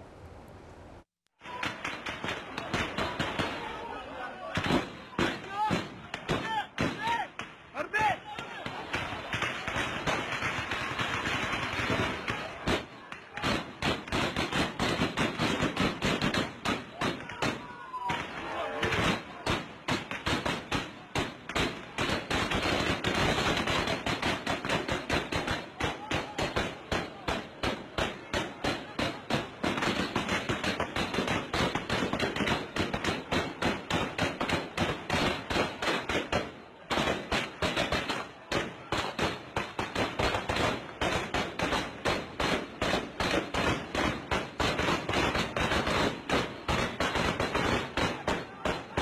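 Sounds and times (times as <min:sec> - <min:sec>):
heavy sustained gunfire: 0:01.5 - 0:49.0.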